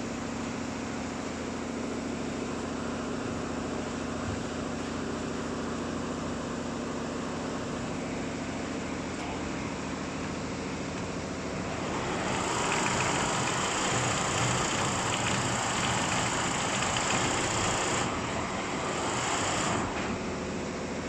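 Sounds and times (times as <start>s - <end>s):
embroidery machine running: 11.5s - 20.7s.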